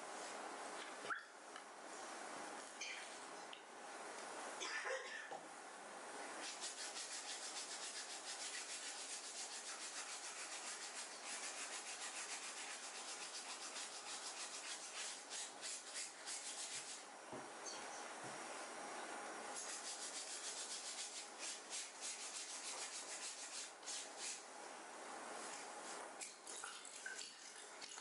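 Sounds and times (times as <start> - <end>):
fast fabric scrubbing: 6.4 - 17.0, 19.6 - 24.4.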